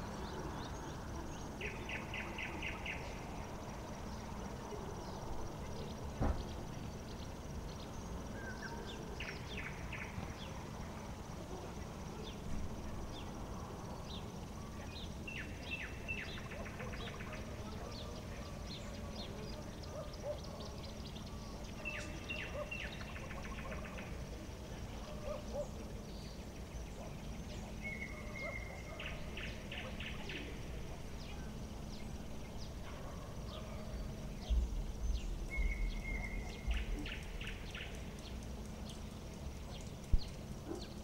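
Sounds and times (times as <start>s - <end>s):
steady low hum: 0.0s - 41.0s
bird calling: 26.9s - 39.0s.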